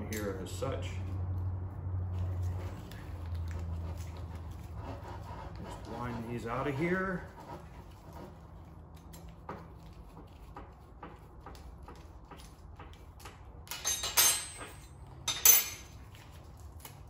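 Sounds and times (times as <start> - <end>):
metal clanks and scrapes: 13.7 - 16.6.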